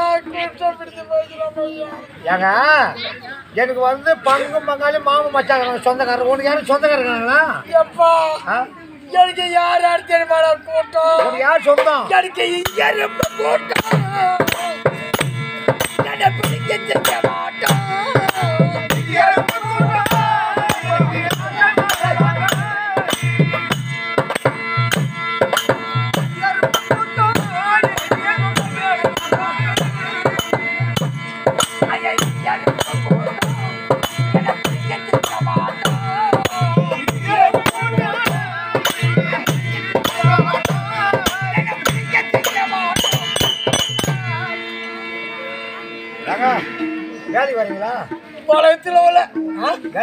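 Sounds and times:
harmonium drone: 11.2s - 50.0s
wavering melody line: 12.4s - 50.0s
hand drum beating quick rhythm: 12.6s - 44.4s.

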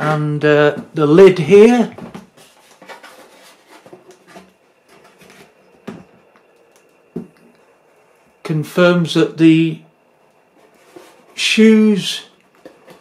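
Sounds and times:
cardboard rustling and scraping: 1.9s - 6.1s, 10.5s - 11.5s.

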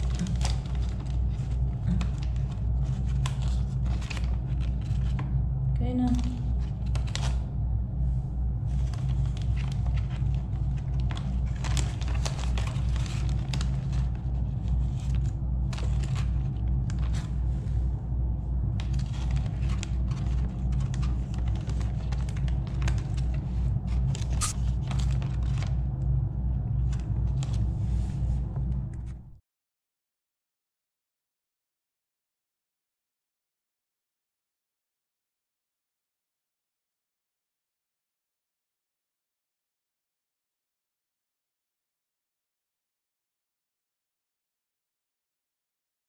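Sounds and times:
steady low hum: 0.0s - 29.4s.

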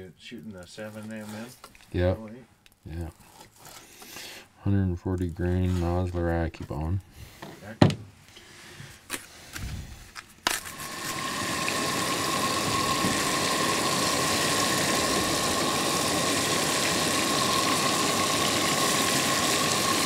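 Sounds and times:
butter sizzling in frying pan: 10.6s - 20.0s.

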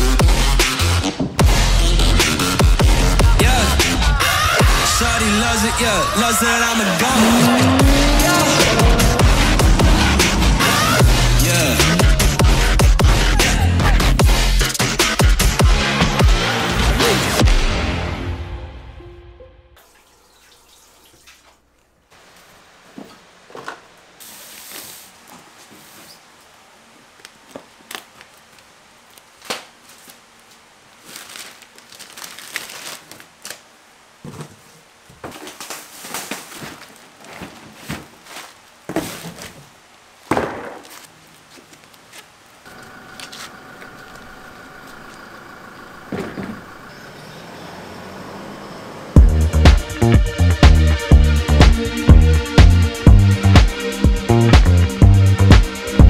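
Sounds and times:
objects being handled and set down: 34.2s - 39.7s.

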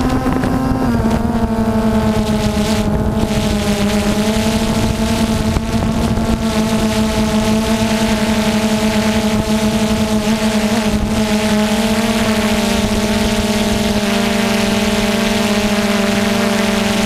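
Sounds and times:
drone motors humming: 0.0s - 17.0s
rush of air from propellers: 0.0s - 17.0s.

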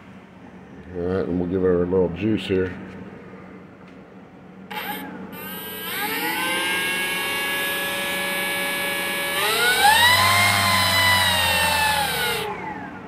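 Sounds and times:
electric motor propeller whine: 4.7s - 13.0s.

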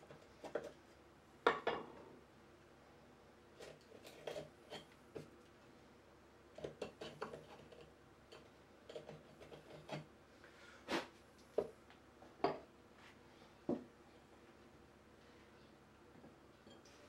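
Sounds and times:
chisel scraping and tapping wood: 6.6s - 10.1s.

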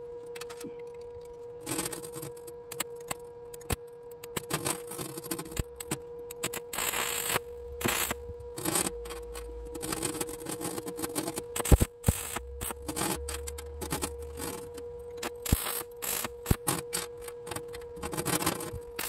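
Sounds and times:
steady hum: 0.0s - 19.0s
arc welder crackling: 1.6s - 19.0s
electrode tapping steel: 11.1s - 19.0s.

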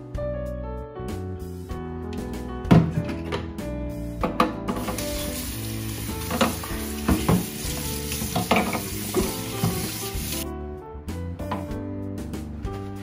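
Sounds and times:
background music: 0.0s - 13.0s
tap running into steel sink: 6.2s - 7.6s, 8.2s - 10.0s.

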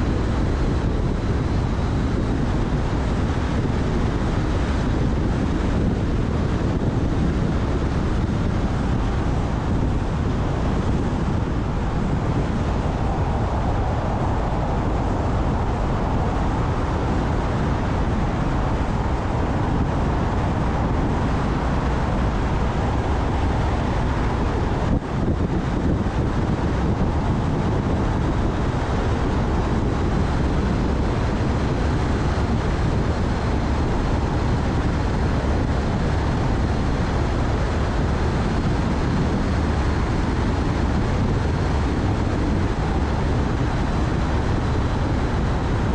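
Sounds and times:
car road and wind noise: 0.0s - 45.9s.

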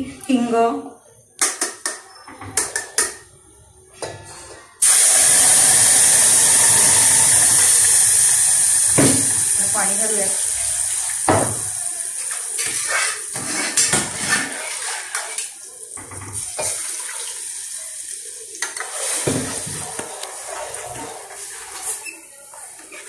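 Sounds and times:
liquid pouring: 4.8s - 13.2s.

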